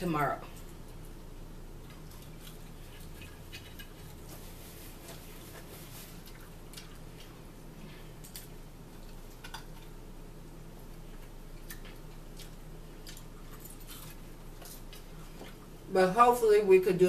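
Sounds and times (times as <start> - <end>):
steady low hum: 0.0 - 17.0
chewing: 1.8 - 10.0, 10.8 - 15.7
paper napkin rustling: 3.6 - 6.4.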